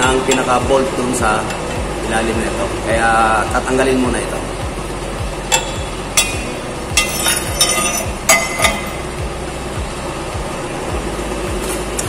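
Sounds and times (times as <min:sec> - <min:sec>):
steady low hum: 0:00.0 - 0:12.0
steel parts clinking: 0:05.5 - 0:09.1.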